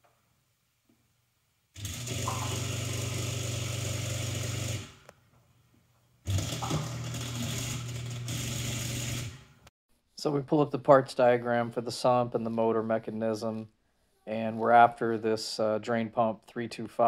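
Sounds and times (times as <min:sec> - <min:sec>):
dishwasher drain pump buzzing: 0:01.8 - 0:05.1, 0:06.3 - 0:09.5.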